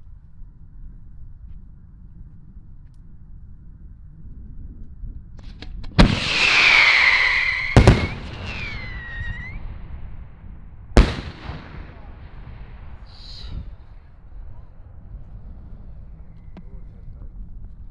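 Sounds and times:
small firework pops: 5.4 - 6.8, 7.7 - 9.5
loud firework bangs: 5.9 - 10.2, 11.0 - 13.2
firework whistling: 6.0 - 9.7.

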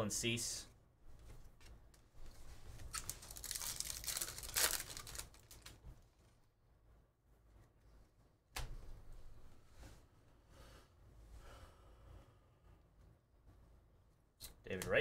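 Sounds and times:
foil wrapper crinkling and tearing: 2.8 - 5.8.

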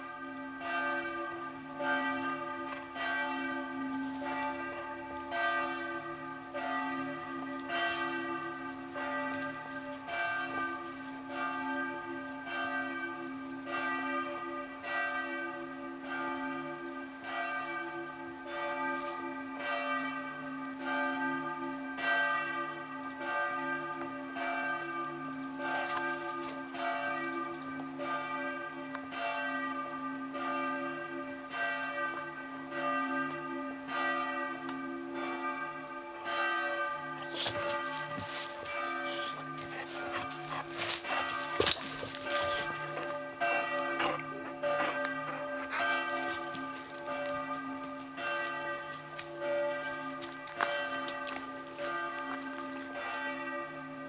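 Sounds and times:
bells ringing: 0.0 - 54.0
steady low tone: 36.8 - 54.0.

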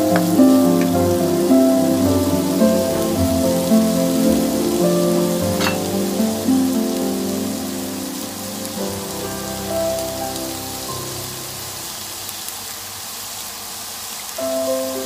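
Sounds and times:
background music of held notes: 0.0 - 12.0
food sizzling in a wok: 0.0 - 15.0.

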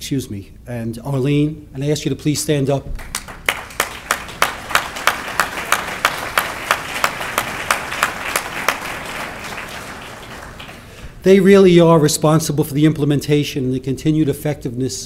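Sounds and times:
audience applauding: 3.0 - 11.1.

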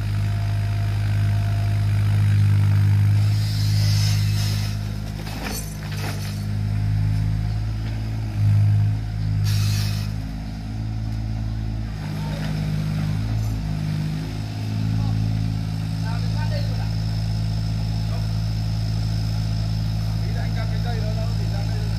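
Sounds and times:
excavator diesel engine running: 0.0 - 21.9
short loud hiss: 9.4 - 10.1.

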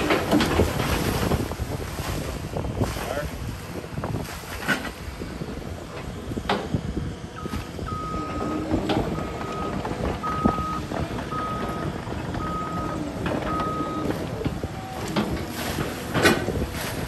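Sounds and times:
reversing alarm beeping: 7.4 - 15.9.

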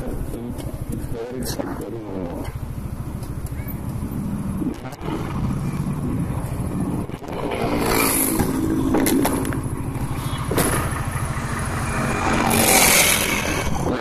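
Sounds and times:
motorcycle engine idling: 0.0 - 7.0, 8.2 - 13.9.

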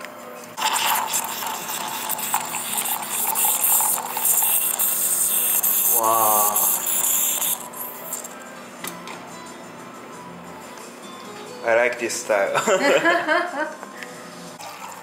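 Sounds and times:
coffee pouring into a mug: 0.6 - 8.4.

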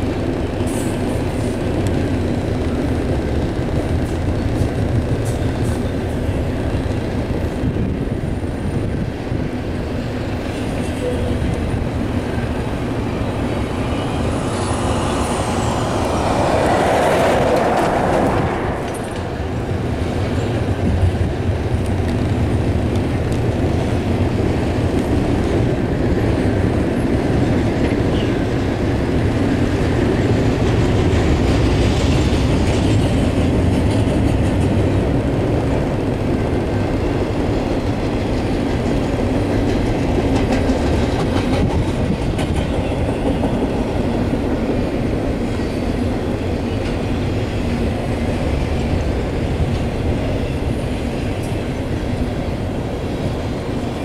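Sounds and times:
train wheels rumbling on rails: 0.0 - 54.0.

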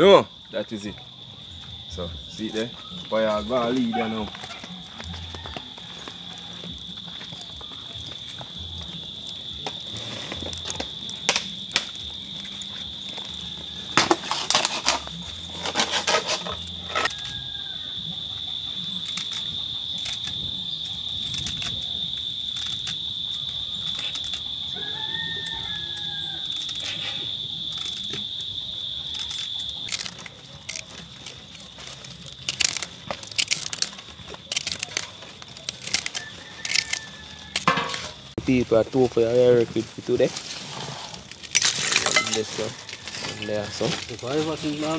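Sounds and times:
high-pitched insect drone: 0.0 - 40.2
leaves rustling: 18.5 - 44.9.

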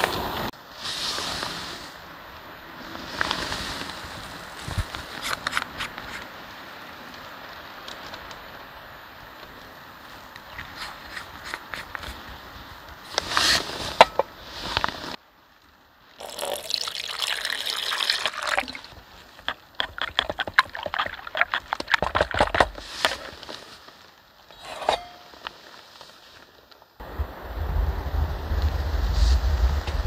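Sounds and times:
water pouring into a bowl: 16.2 - 18.9, 20.0 - 21.7
spork stirring against bowl: 19.8 - 22.4.

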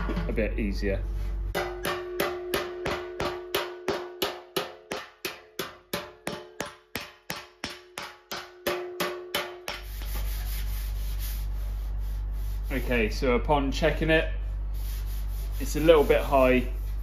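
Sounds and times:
metal slapper striking steel panel: 1.5 - 9.9.

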